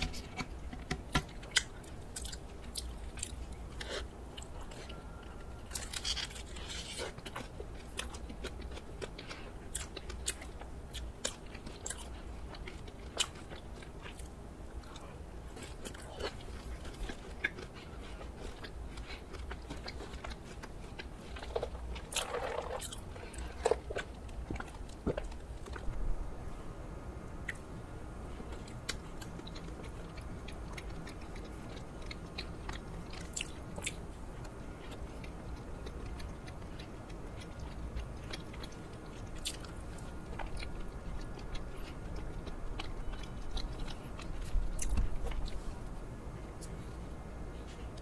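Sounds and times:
crisp bites and chewing: 0:05.6 - 0:14.3.

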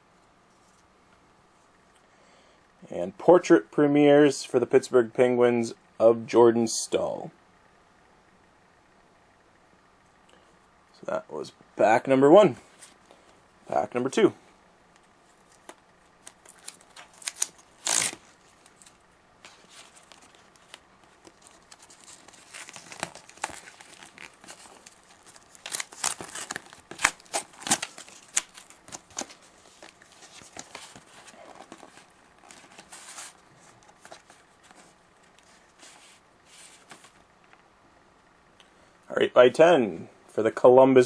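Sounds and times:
foil wrapper tearing and crinkling: 0:15.6 - 0:33.4.

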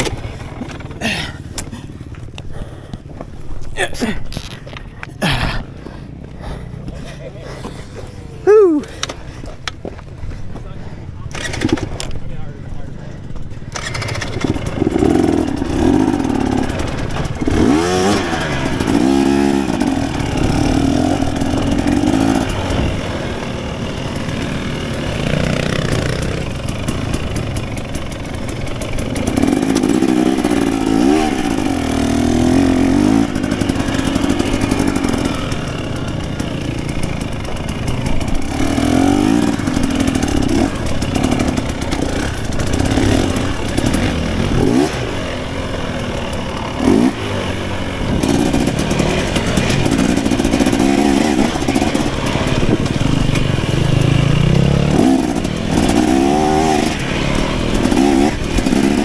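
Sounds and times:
dirt bike engine revving: 0:11.3 - 0:12.2, 0:13.5 - 0:59.0.

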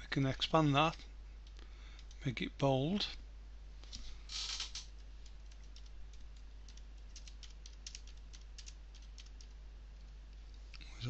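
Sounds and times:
steady low hum: 0:00.0 - 0:11.0
computer keyboard typing: 0:05.2 - 0:09.6.

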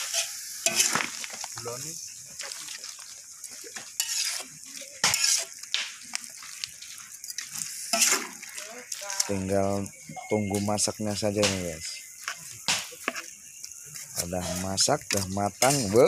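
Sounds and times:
metal spatula scraping wok: 0:00.0 - 0:01.2, 0:04.0 - 0:05.6, 0:07.6 - 0:08.6
meat sizzling in a wok: 0:00.0 - 0:16.0.

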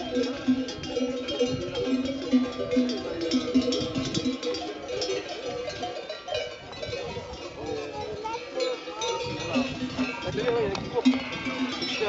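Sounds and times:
sheep bells clanking: 0:00.0 - 0:12.0.

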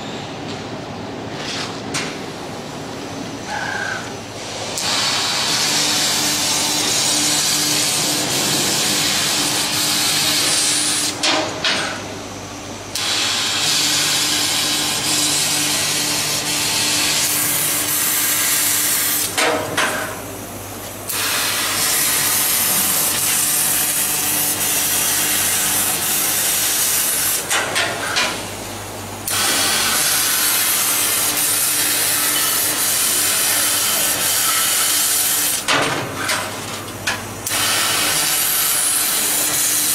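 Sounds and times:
laser cutting hiss: 0:04.8 - 0:11.2, 0:13.0 - 0:19.5, 0:21.1 - 0:27.6, 0:29.3 - 0:35.6, 0:37.4 - 0:39.9.

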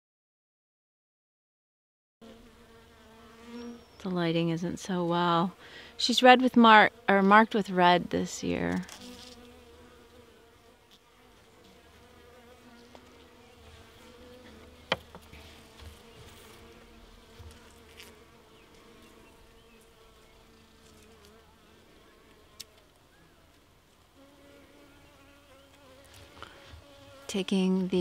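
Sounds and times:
bees buzzing: 0:02.2 - 0:28.0.

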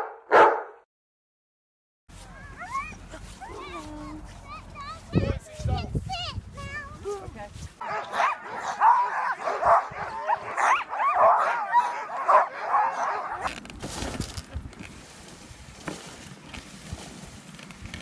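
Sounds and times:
sled dogs barking and yelping: 0:02.1 - 0:13.6
sled rushing over snow: 0:02.1 - 0:18.0.

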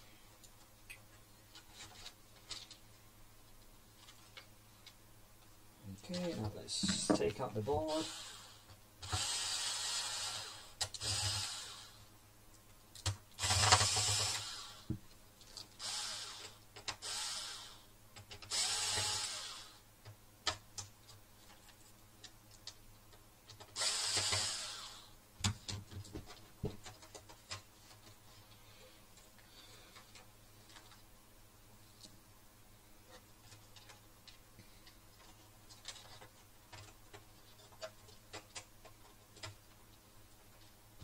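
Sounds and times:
cordless drill whirring: 0:08.0 - 0:12.0, 0:13.4 - 0:14.9, 0:15.8 - 0:17.8, 0:18.5 - 0:19.8, 0:23.8 - 0:25.1.

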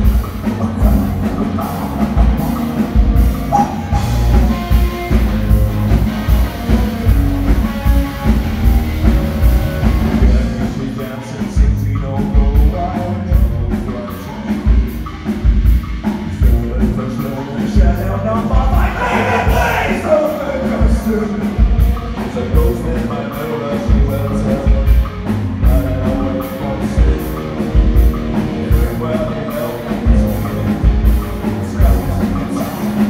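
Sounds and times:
man singing: 0:00.0 - 0:02.8, 0:09.8 - 0:14.9, 0:16.1 - 0:33.0
drum kit beat: 0:00.0 - 0:33.0
electric guitars: 0:00.0 - 0:33.0.

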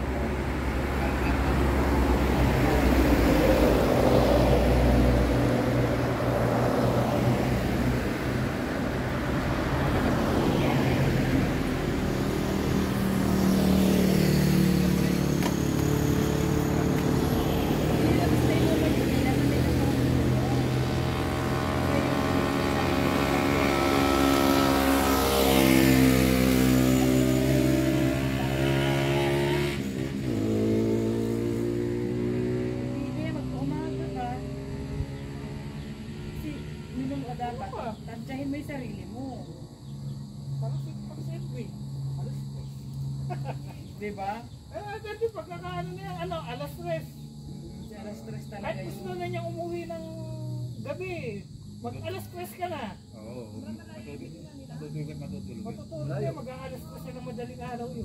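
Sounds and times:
road and wind noise: 0:00.0 - 0:58.0.

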